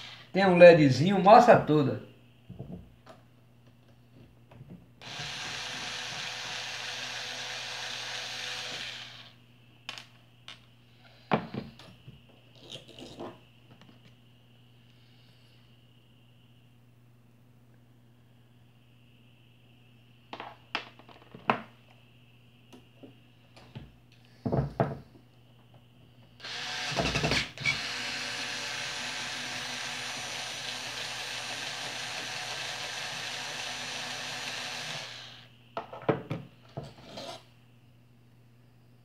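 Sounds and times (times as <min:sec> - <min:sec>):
electric screwdriver running: 0:05.0 - 0:09.3, 0:26.4 - 0:35.5.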